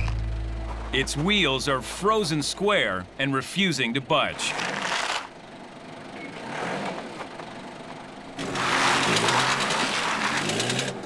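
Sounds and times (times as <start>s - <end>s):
tractor engine running under load: 0.0s - 3.2s
tyres spinning on packed snow: 4.2s - 5.4s, 6.0s - 11.0s.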